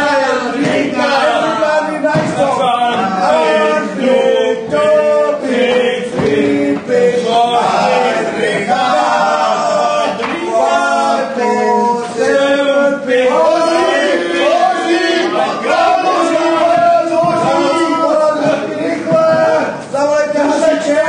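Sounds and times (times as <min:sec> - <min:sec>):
men singing in chorus: 0:00.0 - 0:19.8.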